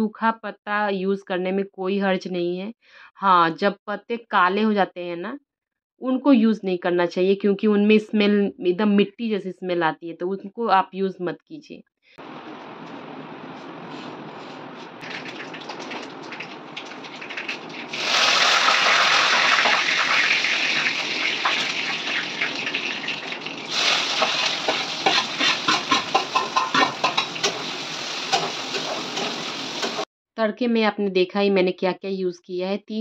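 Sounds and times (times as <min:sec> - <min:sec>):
rapid crackling pops: 0:15.0 - 0:18.0
oil sizzling loudly: 0:15.0 - 0:30.1.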